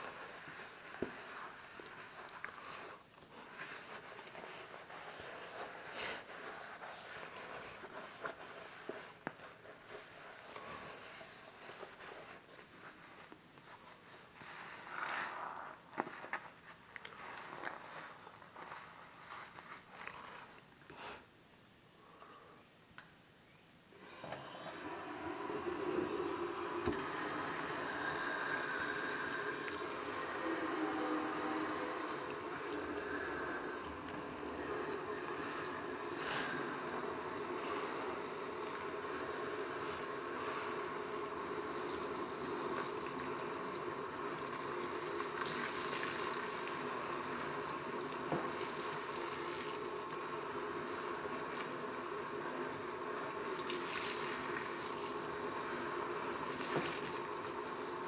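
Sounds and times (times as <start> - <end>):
water running into metal sink: 24.7 - 58.0.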